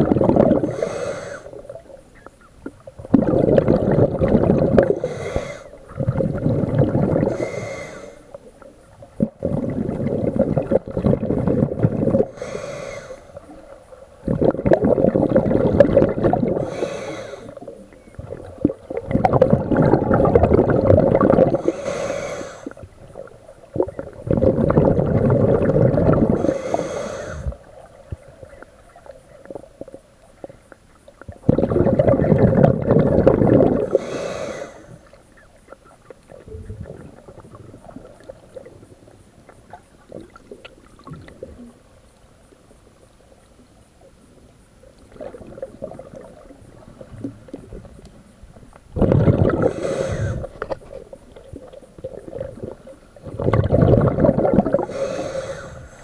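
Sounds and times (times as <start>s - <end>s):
exhaled bubbles underwater: 0.0s - 41.9s, 45.0s - 56.0s
regulator hiss: 0.6s - 2.4s, 4.8s - 5.9s, 7.1s - 8.6s, 11.3s - 14.1s, 16.2s - 18.0s, 21.5s - 23.2s, 26.2s - 27.9s, 33.8s - 35.4s, 49.6s - 51.0s, 54.7s - 56.0s.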